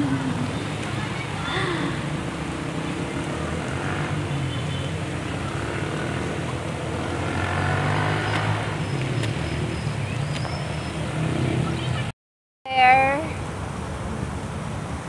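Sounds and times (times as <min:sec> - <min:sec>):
vehicle engine droning: 0:00.0 - 0:12.1.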